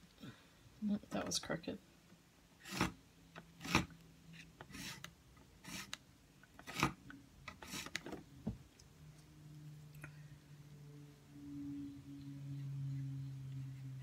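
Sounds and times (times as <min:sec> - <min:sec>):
faint steady hum: 0:00.0 - 0:14.0
tool scraping along metal ruler: 0:03.6 - 0:06.0.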